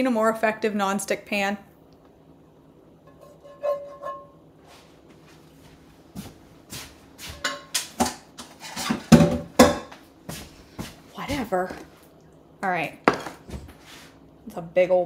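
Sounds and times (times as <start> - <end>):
dishes and utensils clattering: 3.1 - 4.4, 7.4 - 10.0
pan clanking: 3.1 - 4.4, 7.4 - 7.8
spatula scraping frying pan: 3.1 - 4.4, 8.4 - 9.1.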